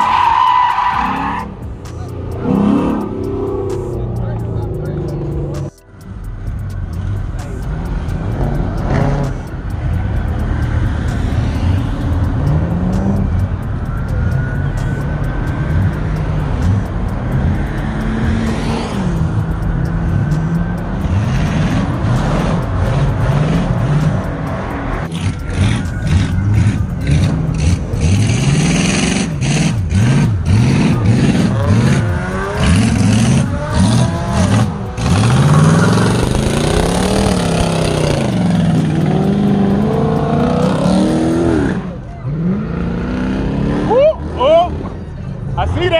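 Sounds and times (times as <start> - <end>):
car engines revving: 0.0 - 45.9.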